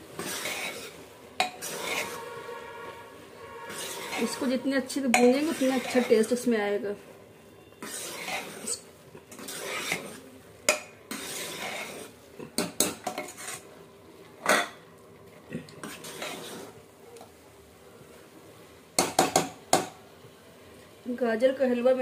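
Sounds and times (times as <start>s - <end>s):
spoon scraping thick food in pot: 0.0s - 6.5s, 7.7s - 13.8s, 15.7s - 16.9s.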